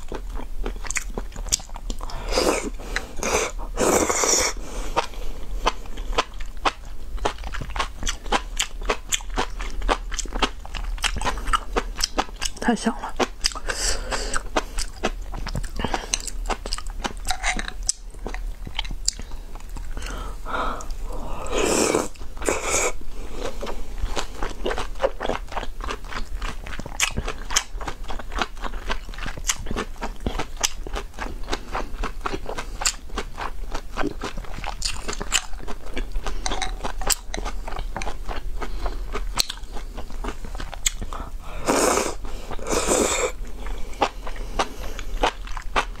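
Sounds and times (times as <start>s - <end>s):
wet chewing with mouth clicks: 0.0s - 46.0s
noodle slurping: 2.2s - 5.1s, 20.0s - 24.3s, 41.6s - 43.4s.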